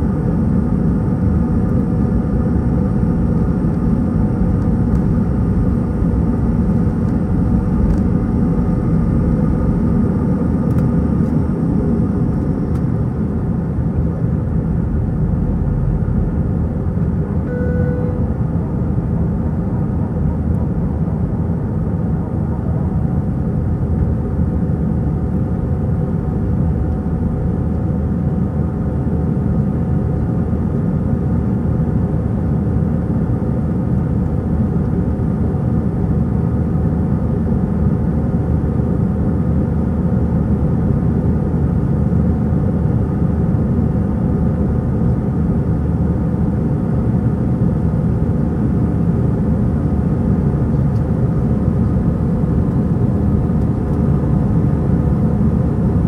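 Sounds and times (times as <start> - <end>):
jet engines droning: 0.0 - 56.0
faint steady tones: 17.4 - 18.6.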